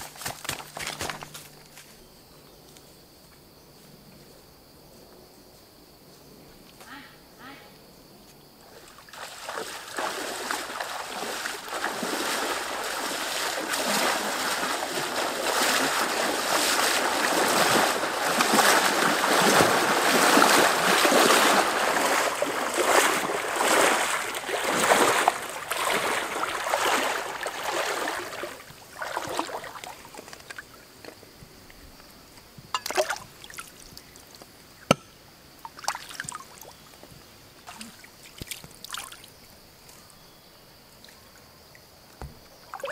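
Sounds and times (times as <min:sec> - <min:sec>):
splashing and sloshing water: 0:08.7 - 0:30.9, 0:32.8 - 0:34.0, 0:35.6 - 0:36.8, 0:37.6 - 0:39.5, 0:42.3 - 0:42.9.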